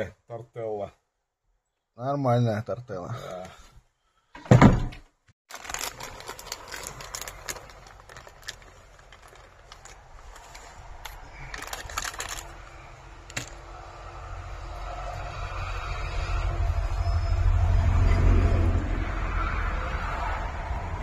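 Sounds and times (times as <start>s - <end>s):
low rumble: 10.8s - 21.0s.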